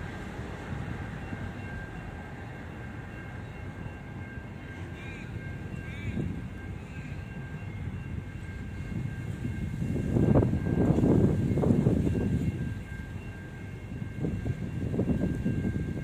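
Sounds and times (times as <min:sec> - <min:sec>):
train wheels rumbling on rails: 0:00.0 - 0:16.0
wind buffeting microphone: 0:05.6 - 0:16.0.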